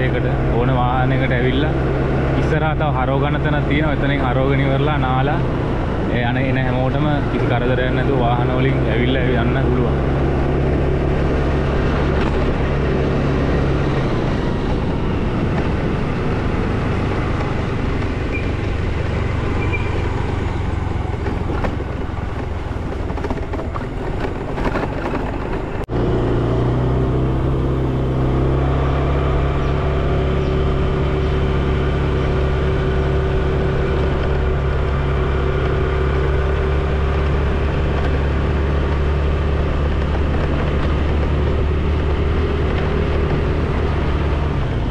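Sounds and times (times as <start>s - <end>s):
vehicle engine running: 0.0s - 44.9s.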